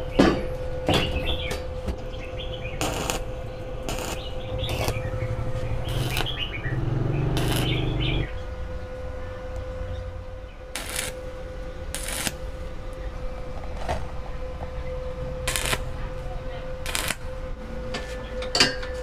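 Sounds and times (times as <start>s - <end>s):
steady electrical hum: 0.0s - 19.0s
welding arc crackling: 2.6s - 8.3s, 10.7s - 11.3s, 11.9s - 12.6s, 15.4s - 16.0s, 16.8s - 17.5s.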